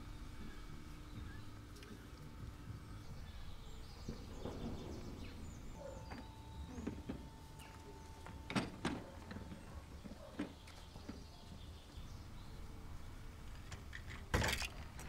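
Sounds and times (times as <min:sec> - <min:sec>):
birds chirping: 0:00.0 - 0:13.4
mop bucket rolling on concrete: 0:01.1 - 0:12.1.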